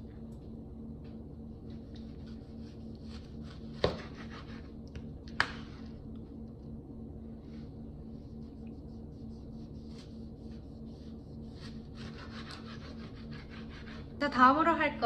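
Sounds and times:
low hum: 0.0s - 15.0s
knife slicing scrapes: 2.0s - 4.8s, 9.8s - 14.1s.

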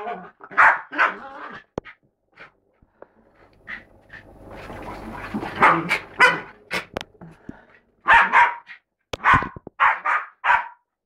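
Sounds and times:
dog barking: 0.0s - 1.2s, 5.6s - 6.9s, 8.0s - 10.9s.

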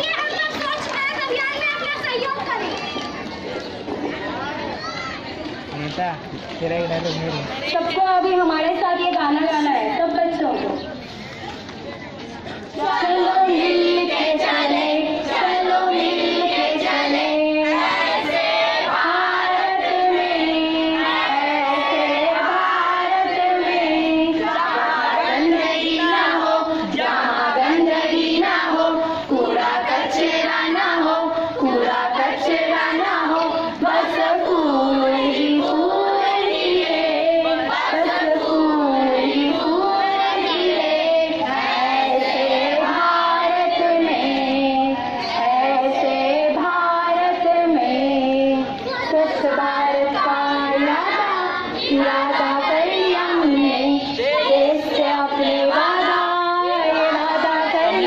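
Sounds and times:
children singing: 12.7s - 58.0s.

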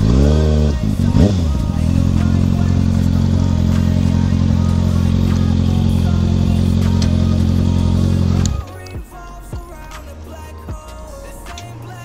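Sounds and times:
faint music: 0.0s - 12.0s
motorcycle engine idling: 0.0s - 12.0s.

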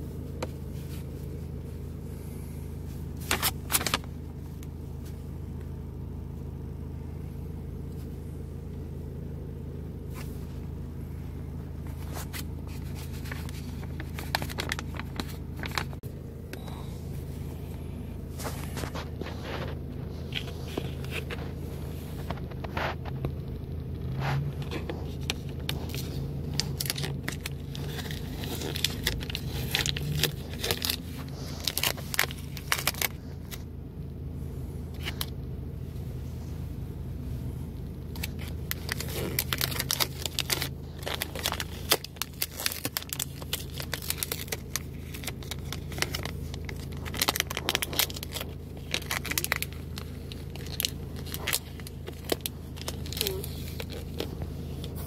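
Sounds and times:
steady low hum: 0.0s - 55.0s
plastic packaging crinkling: 3.2s - 4.1s, 11.9s - 16.0s, 18.4s - 23.2s, 24.3s - 33.6s, 38.1s - 55.0s.

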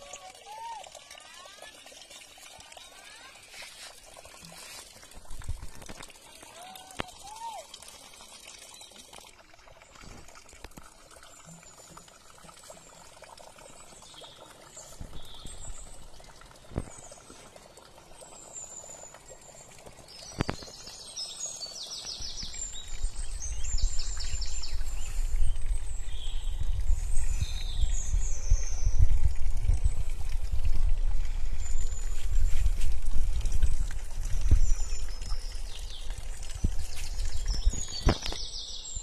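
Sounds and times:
trickle of running water: 0.0s - 39.0s
small birds chirping: 13.7s - 30.1s, 34.3s - 39.0s.

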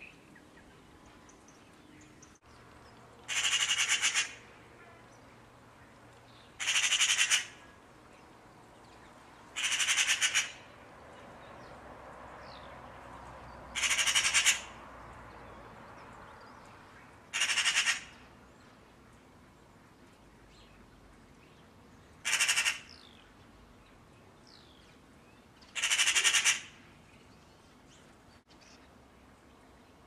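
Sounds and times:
magpie chattering: 3.3s - 4.4s, 6.6s - 7.6s, 9.6s - 10.6s, 13.8s - 14.6s, 17.4s - 18.1s, 22.2s - 22.9s, 25.8s - 26.7s.

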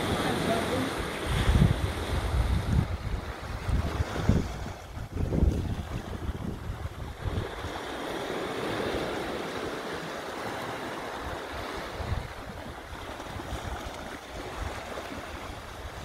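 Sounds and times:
sea water washing on rock: 0.0s - 16.0s
wind buffeting microphone: 0.0s - 16.0s.

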